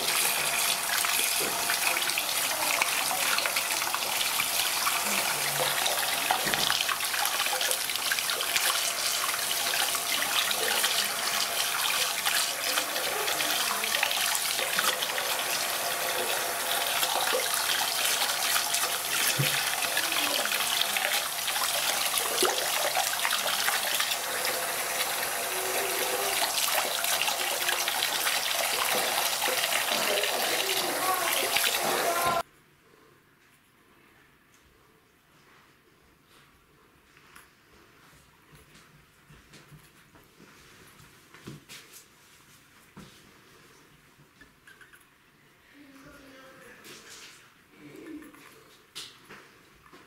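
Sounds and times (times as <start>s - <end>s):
sink tap running: 0.0s - 32.4s.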